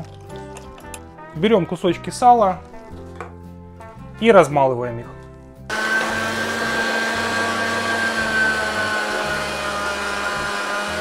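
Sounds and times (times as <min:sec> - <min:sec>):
electric meat grinder whining: 0:05.7 - 0:11.0.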